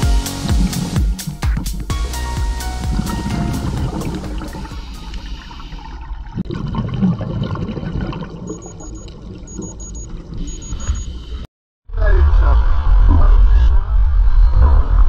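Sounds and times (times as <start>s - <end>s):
low rumbling water noise: 0.0s - 10.8s
regulator bubbles: 0.4s - 10.7s
faint high beeps: 8.5s - 11.2s.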